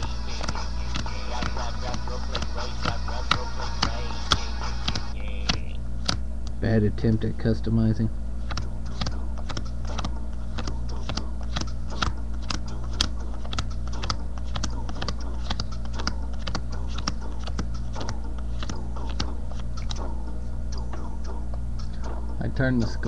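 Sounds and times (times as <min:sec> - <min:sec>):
steady low hum: 0:00.0 - 0:23.0
trading cards flipping: 0:02.3 - 0:06.2, 0:08.4 - 0:20.1.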